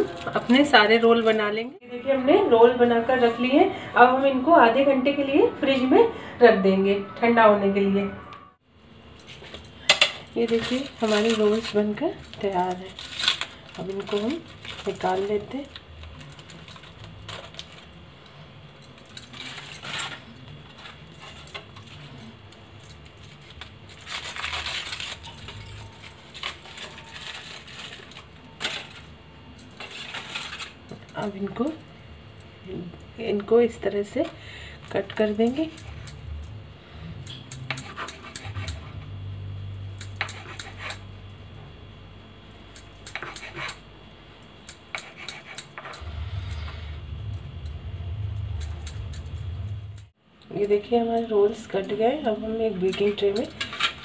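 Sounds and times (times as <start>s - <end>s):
low steady hum: 0.0s - 54.0s
aluminium foil crinkling: 9.2s - 32.4s.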